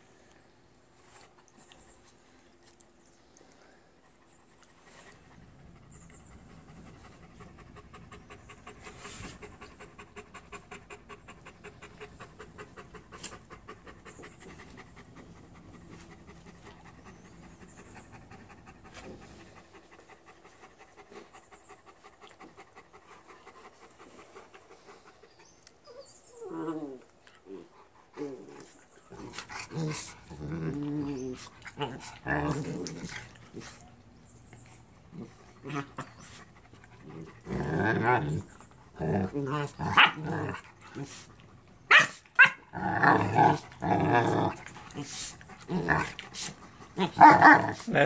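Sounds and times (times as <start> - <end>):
dog panting: 4.0 - 25.8, 31.0 - 37.6.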